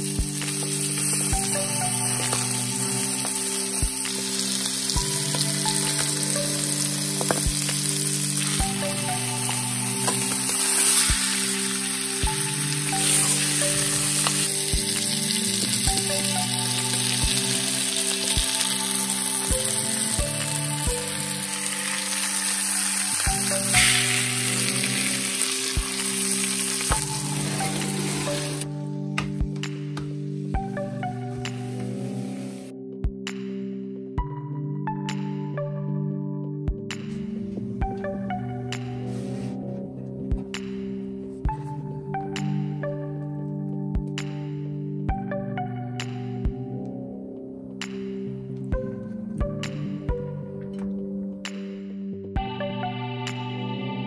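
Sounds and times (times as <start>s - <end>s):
fish sizzling in a skillet: 0.0s - 28.6s
background music: 0.0s - 54.0s.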